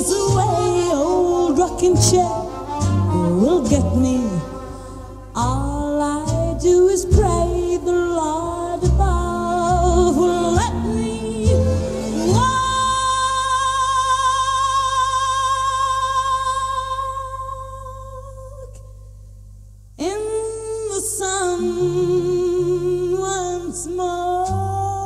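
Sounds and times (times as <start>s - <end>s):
woman singing: 0.0s - 4.7s, 5.4s - 18.8s, 20.0s - 25.0s
band accompaniment: 0.0s - 7.6s, 8.8s - 13.0s.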